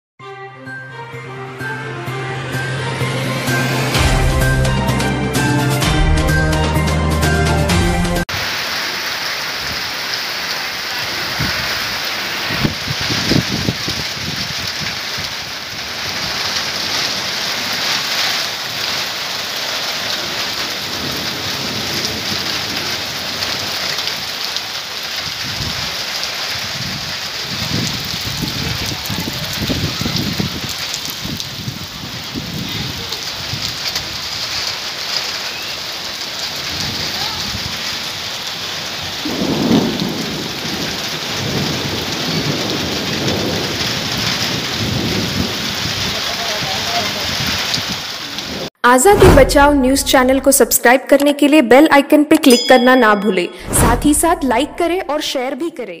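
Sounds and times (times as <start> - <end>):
low rumbles: 2.1 - 7.1, 48.9 - 50.6, 53.6 - 55.3
heavy rain falling: 2.2 - 50.8.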